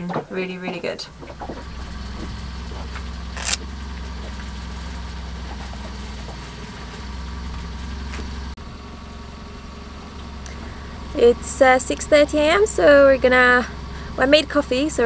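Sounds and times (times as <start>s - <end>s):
boat engine idling: 1.1s - 15.0s
sharp click: 3.4s - 3.6s.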